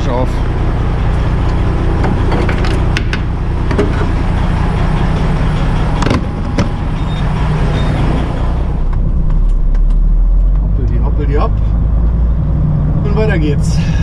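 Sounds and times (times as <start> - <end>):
diesel truck engine running: 0.0 - 14.0
sharp clicks and knocks: 1.4 - 4.2, 6.0 - 6.8.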